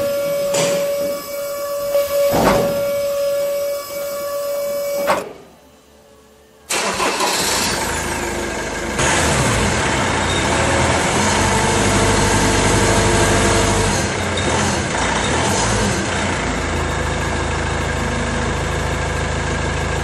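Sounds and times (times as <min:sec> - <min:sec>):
vehicle engine idling: 0:06.8 - 0:20.0.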